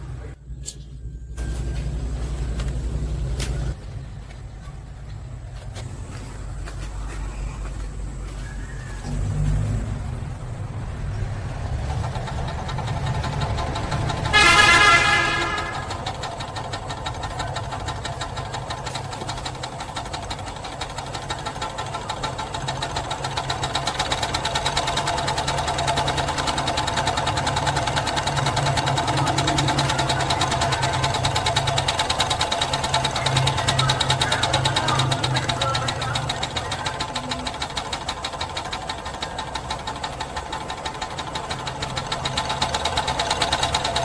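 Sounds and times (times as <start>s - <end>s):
steam engine knocking beat: 11.4s - 44.0s
loud horn-like tone: 14.3s - 16.0s.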